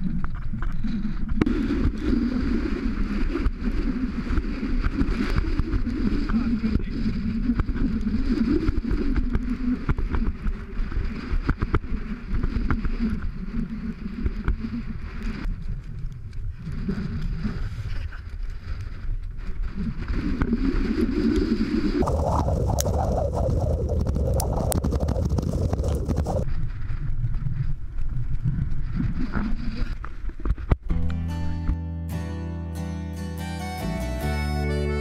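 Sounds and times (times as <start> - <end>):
wind buffeting microphone: 0.0 - 30.9.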